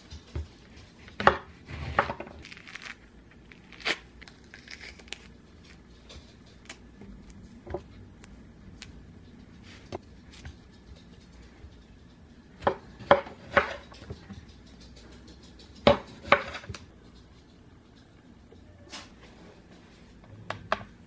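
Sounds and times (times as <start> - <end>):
orange peel tearing: 2.4 - 5.7.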